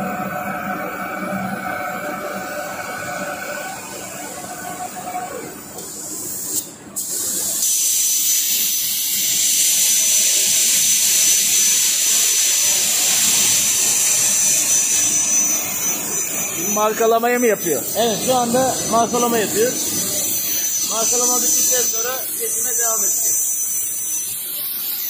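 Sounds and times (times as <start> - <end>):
thin high whine: 0.0 - 6.8, 12.2 - 25.0
plasma arc hissing: 2.2 - 25.0.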